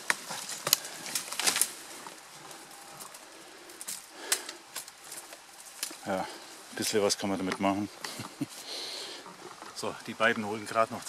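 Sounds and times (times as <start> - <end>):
dry branches rustling and snapping: 0.0 - 11.0.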